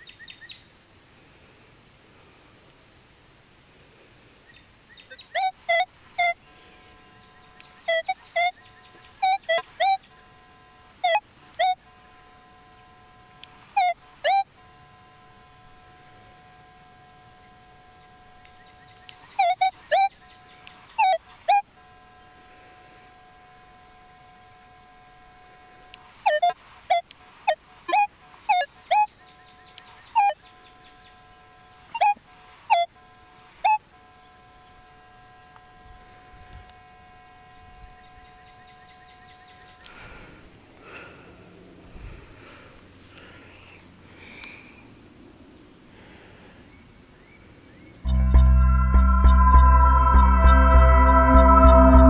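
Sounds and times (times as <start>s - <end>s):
faint steady tone: 0.0s - 52.0s
metal detector beeps: 5.4s - 22.4s, 33.6s - 39.6s.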